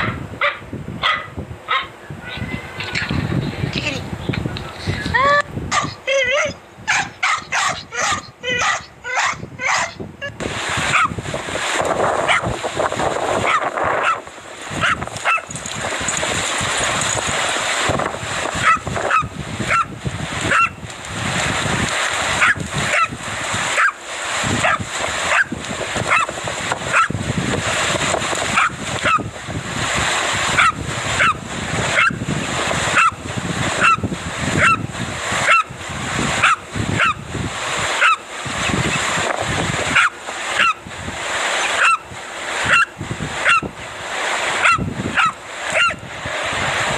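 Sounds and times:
dog barking: 0.0 - 1.9, 5.7 - 6.0, 6.9 - 10.0, 10.9 - 11.2, 12.3 - 12.5, 13.4 - 14.2, 14.8 - 15.5, 18.6 - 19.9, 20.5 - 20.8, 22.4 - 23.2, 23.8 - 24.0, 24.6 - 25.5, 26.1 - 26.3, 26.9 - 27.2, 28.6 - 29.3, 30.6 - 31.4, 32.0 - 32.2, 33.0 - 33.2, 33.8 - 34.0, 34.6 - 34.8, 35.4 - 35.7, 36.4 - 37.2, 38.0 - 38.2, 39.9 - 40.8, 41.8 - 42.0, 42.7 - 43.7, 44.6 - 46.0
surf rushing: 0.0 - 46.9.

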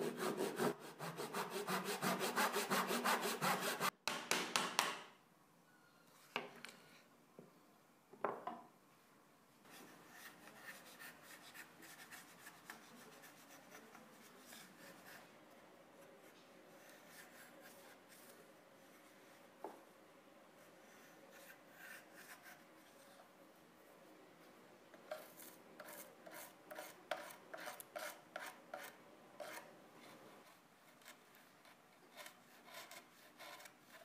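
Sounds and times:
chisel scraping wood: 25.1 - 29.7, 32.1 - 34.0.

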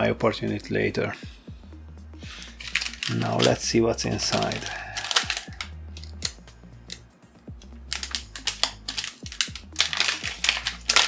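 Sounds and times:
plastic zip seal clicking open: 4.5 - 7.0, 7.6 - 11.0.

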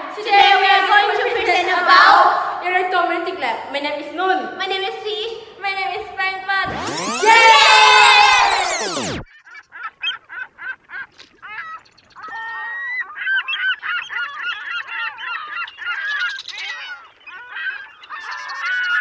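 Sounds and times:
flock of birds calling: 9.6 - 19.0.

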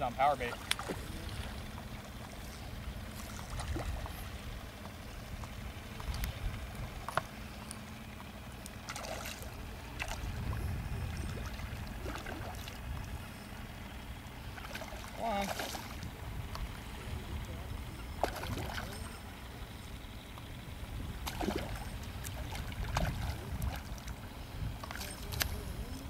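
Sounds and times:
faint water sounds: 0.0 - 26.0
wind rumbling on microphone: 2.6 - 7.1, 9.5 - 13.8, 15.7 - 18.9, 20.1 - 26.0.

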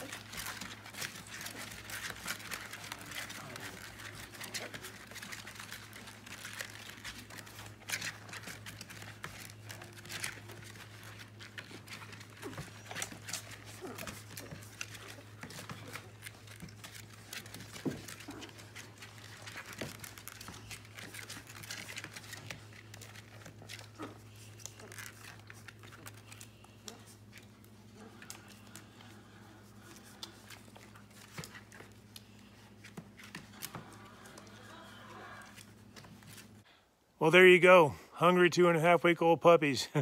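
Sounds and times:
puppies squeaking: 0.0 - 35.7
puppies suckling: 0.0 - 36.7.

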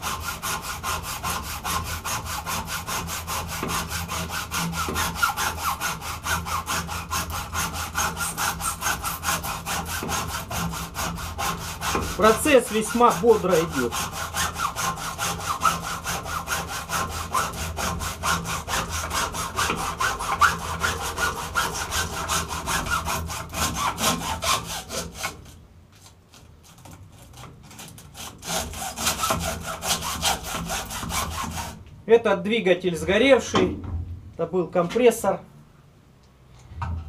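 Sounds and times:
hacksaw sawing through copper: 0.0 - 25.6, 26.4 - 31.8.

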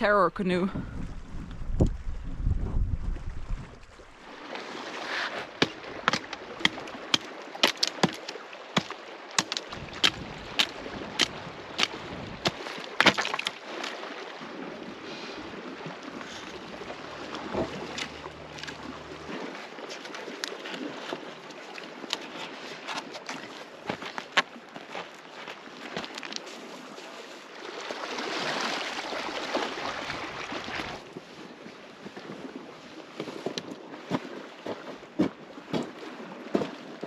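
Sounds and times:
stones clacking under canoe hull: 5.2 - 14.0, 16.2 - 26.6, 33.2 - 36.7.

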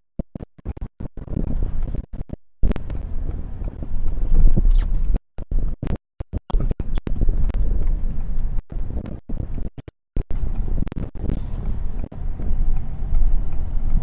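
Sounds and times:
truck engine rumbling: 10.2 - 14.0.

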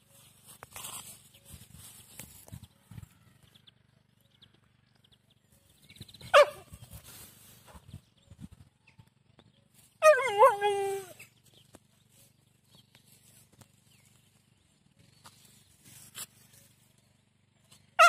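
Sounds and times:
husky howling vocal call: 10.0 - 11.2.

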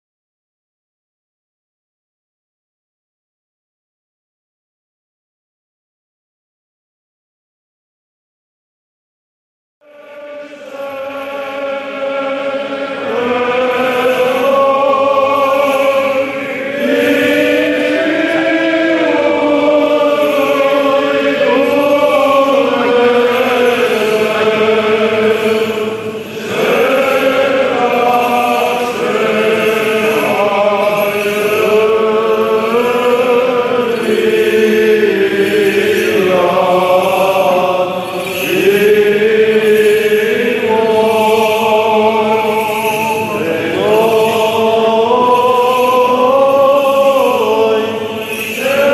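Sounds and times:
several voices chanting: 9.8 - 48.9.

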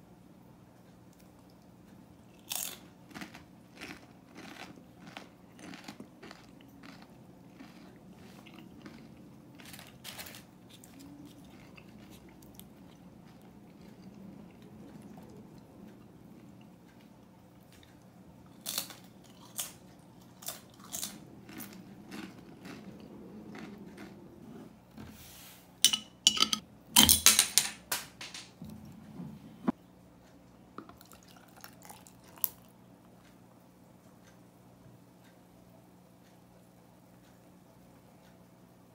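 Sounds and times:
chips crunching: 2.4 - 14.1, 18.5 - 24.2
glass bottle clinking: 25.9 - 27.2.

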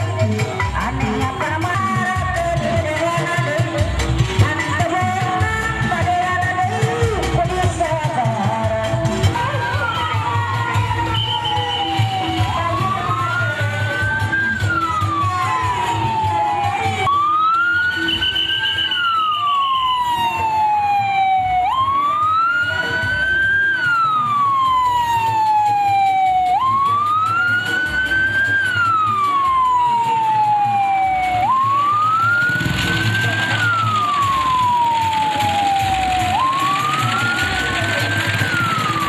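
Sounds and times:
police siren wailing: 0.0 - 8.3, 9.1 - 39.0
low street rumble: 23.5 - 39.0.

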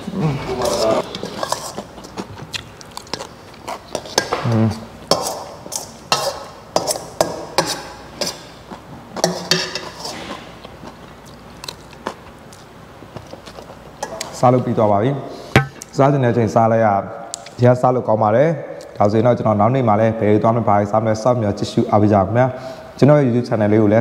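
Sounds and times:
fork scraping metal bowl: 0.6 - 2.1, 5.1 - 8.4.

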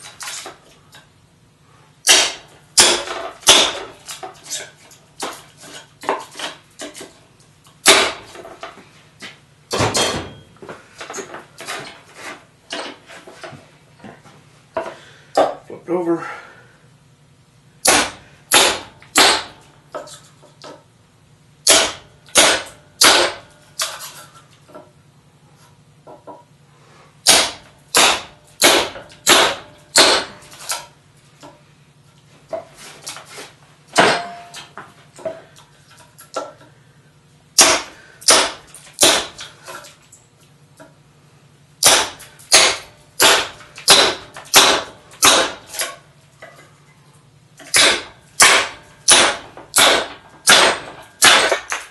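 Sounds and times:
sledgehammer striking steel blade: 2.0 - 4.6, 7.8 - 8.3, 9.7 - 10.5, 17.8 - 19.6, 21.6 - 24.1, 27.2 - 30.8, 34.0 - 34.8, 37.6 - 39.5, 41.8 - 46.0, 47.7 - 51.9.

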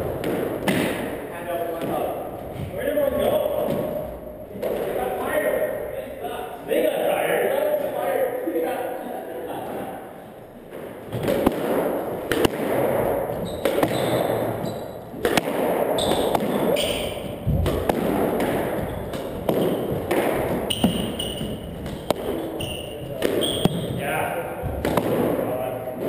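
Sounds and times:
squash ball cracking off wall: 0.0 - 1.2, 10.7 - 24.0, 24.6 - 25.5
shoes squeaking on hardwood floor: 13.0 - 15.2, 15.9 - 25.0.

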